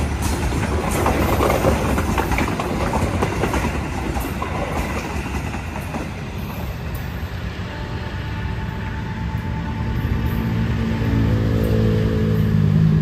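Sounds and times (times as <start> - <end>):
wheels clacking over rail joints: 0.0 - 7.2
train coaches rolling past: 0.0 - 13.0.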